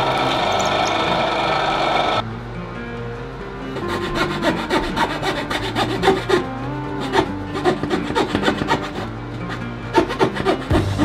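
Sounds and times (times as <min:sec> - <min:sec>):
background music: 0:00.0 - 0:11.0
hand tool rasping wood: 0:03.8 - 0:11.0.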